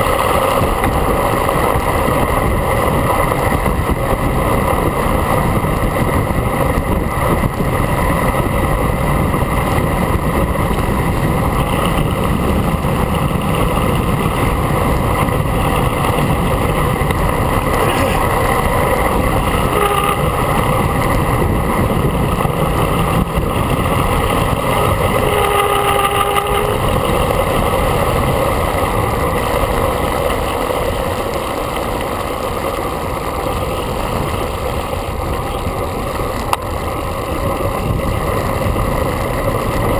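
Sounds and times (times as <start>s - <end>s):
tyre noise on asphalt: 0.0s - 39.9s
wind buffeting microphone: 0.0s - 39.9s.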